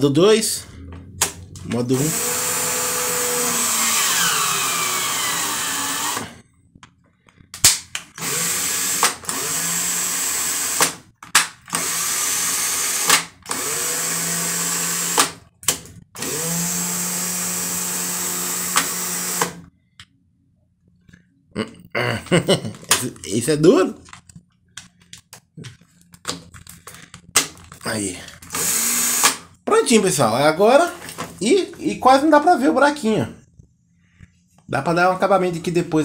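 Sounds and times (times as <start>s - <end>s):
cordless drill running: 2.0s - 6.4s, 8.1s - 11.0s, 11.7s - 15.4s, 16.2s - 19.7s, 28.5s - 29.5s.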